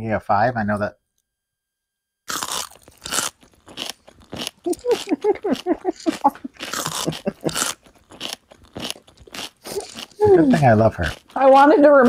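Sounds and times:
potato chips crunching: 0:02.3 - 0:11.8
woman giggling: 0:04.6 - 0:07.7, 0:09.7 - 0:10.8.

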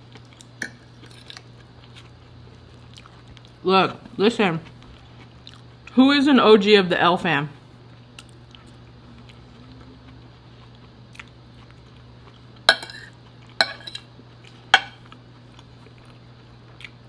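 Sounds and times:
fork clinking on ceramic plate: 0:12.7 - 0:14.1, 0:14.7 - 0:15.0.

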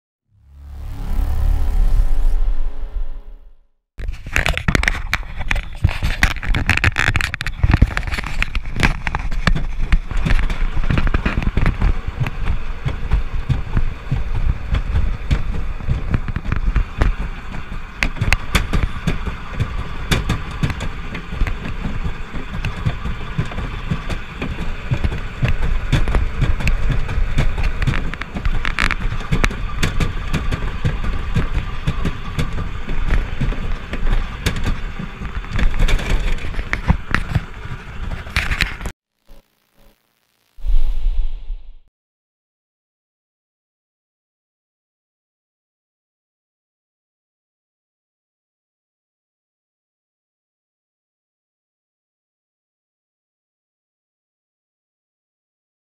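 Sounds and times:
sled clattering and knocking: 0:04.0 - 0:38.9
sled rumbling down track: 0:04.0 - 0:38.9.

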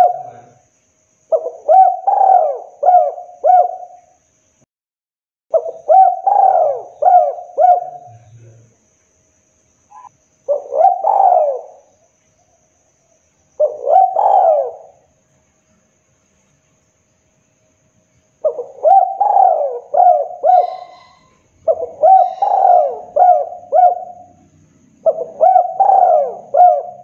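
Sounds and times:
dove cooing: 0:00.0 - 0:00.6, 0:01.3 - 0:04.0, 0:05.5 - 0:08.6, 0:09.9 - 0:11.9, 0:13.6 - 0:15.0, 0:18.4 - 0:27.0.

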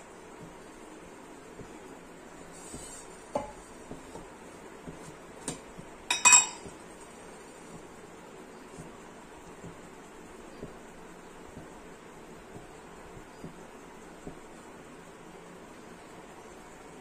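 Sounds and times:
metal kitchenware knocking: 0:06.1 - 0:06.7.

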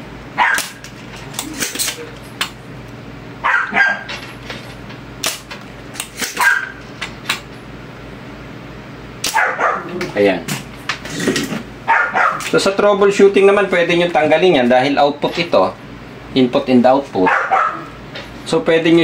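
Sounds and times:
dog barking: 0:00.4 - 0:00.8, 0:03.4 - 0:04.1, 0:06.4 - 0:06.8, 0:09.3 - 0:10.0, 0:11.9 - 0:12.5, 0:17.2 - 0:18.0.

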